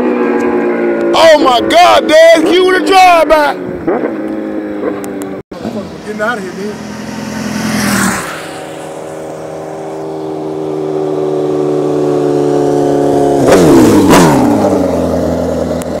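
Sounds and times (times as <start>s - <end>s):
motorcycles racing past: 0.0s - 16.0s.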